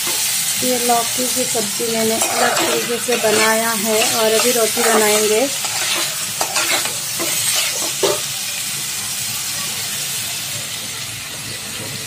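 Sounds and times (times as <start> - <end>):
vegetables sizzling in a pan: 0.0 - 12.0
metal spatula scraping a pan: 1.8 - 8.3.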